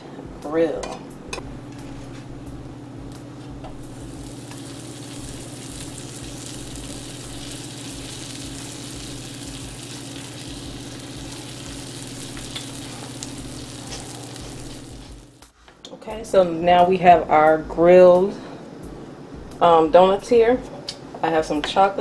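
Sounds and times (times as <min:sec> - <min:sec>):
low hum: 0:00.0 - 0:15.5
donuts sizzling on grill pan: 0:03.9 - 0:15.5.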